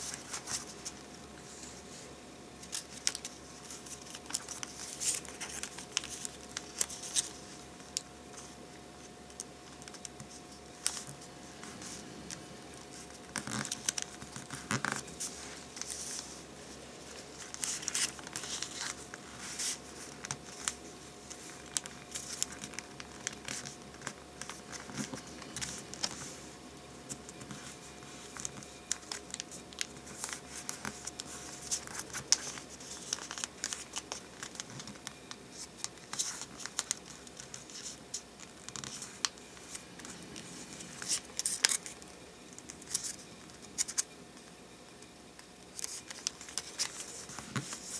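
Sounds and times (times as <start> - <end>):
paper crinkling and rustling: 0.0 - 1.9, 2.6 - 26.5, 27.1 - 44.2, 45.4 - 47.9
paper crackling as folds pressed: 2.6 - 8.6, 9.3 - 16.4, 17.0 - 26.3, 27.1 - 44.2, 45.6 - 47.9.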